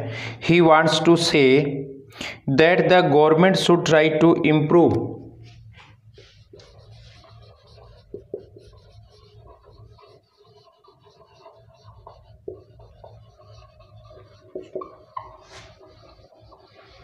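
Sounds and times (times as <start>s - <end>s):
marker pen writing on board: 4.8s - 17.0s
marker pen tapping: 6.5s - 17.0s.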